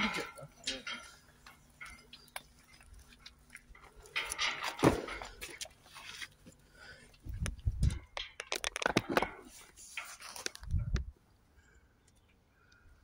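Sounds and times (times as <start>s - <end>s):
metal gate clanking: 0.0s - 3.0s, 3.7s - 5.6s.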